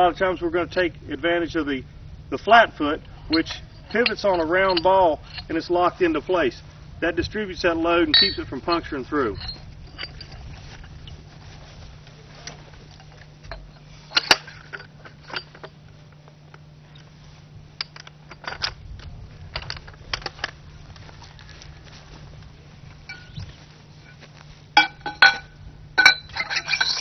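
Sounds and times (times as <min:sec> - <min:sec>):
steady low hum: 0:00.0 - 0:27.0
metal parts clicking and clinking: 0:03.3 - 0:05.7, 0:08.1 - 0:11.2, 0:12.4 - 0:15.8, 0:17.8 - 0:20.6, 0:23.1 - 0:27.0.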